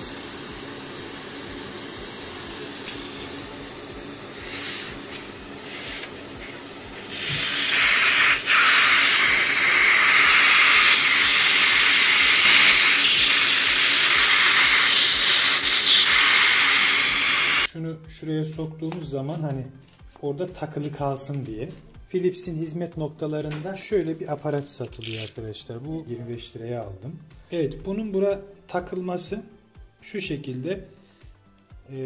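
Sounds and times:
tape peeling hiss: 0.0s - 17.7s.

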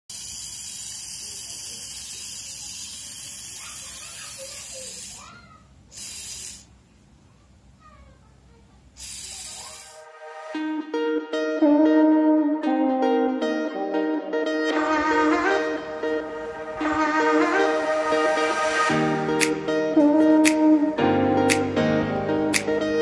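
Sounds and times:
small motor whirring: 0.1s - 3.6s.

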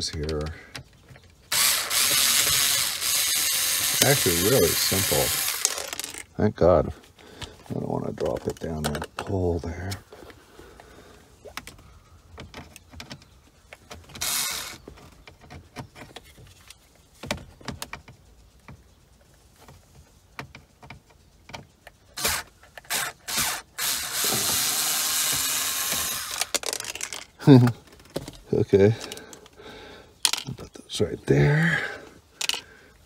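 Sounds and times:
tool and plastic parts clicking: 0.0s - 6.3s, 20.4s - 28.4s, 29.0s - 29.6s, 30.2s - 30.6s, 32.4s - 32.7s.

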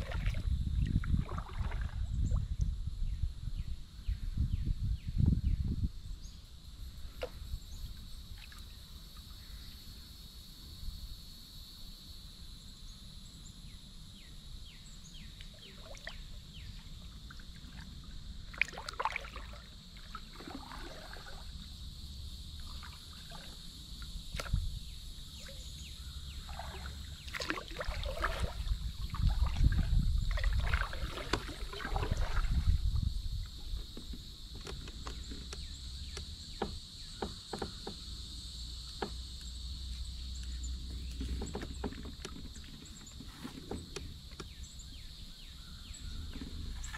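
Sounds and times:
paddle splashing water: 0.0s - 2.1s, 15.5s - 21.7s, 22.5s - 24.6s, 25.3s - 36.8s, 40.9s - 44.6s, 46.0s - 46.9s
high insect drone: 0.0s - 46.9s.

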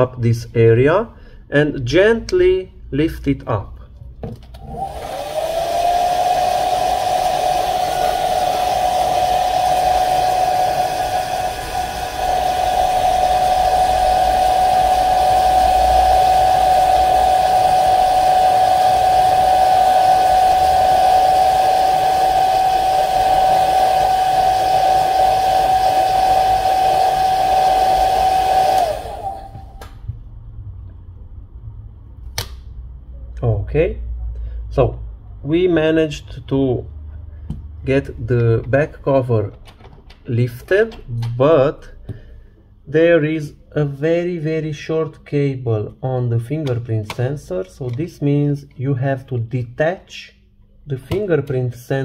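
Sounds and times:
hair dryer running: 4.6s - 30.1s.

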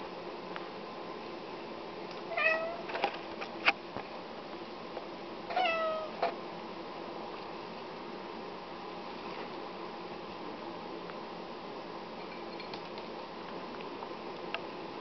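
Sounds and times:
cat meowing: 2.3s - 2.8s, 5.5s - 6.2s.

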